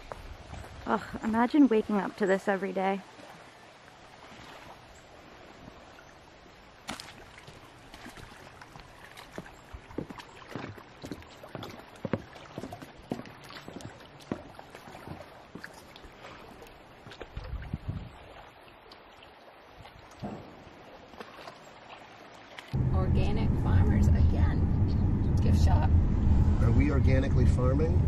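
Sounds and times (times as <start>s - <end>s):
footsteps on wooden planks: 7.0s - 16.0s.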